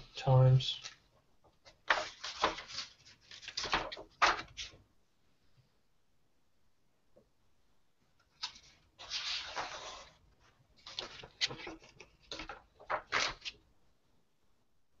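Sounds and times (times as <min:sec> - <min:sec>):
paper pages rustling: 0:01.6 - 0:04.8, 0:08.2 - 0:13.7.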